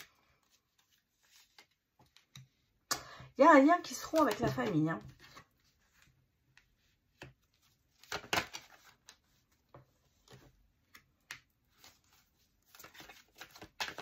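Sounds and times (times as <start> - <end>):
cards clicking and rustling: 4.0 - 14.0.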